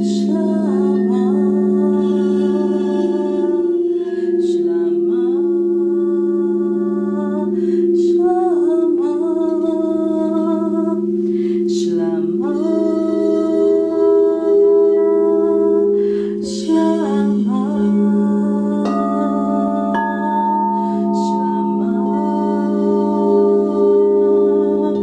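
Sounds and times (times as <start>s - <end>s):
crystal singing bowls ringing: 0.0s - 25.0s
woman singing wordless notes: 0.0s - 25.0s
woman breathing: 7.5s - 8.0s, 11.1s - 11.7s, 15.9s - 16.4s, 20.6s - 21.2s.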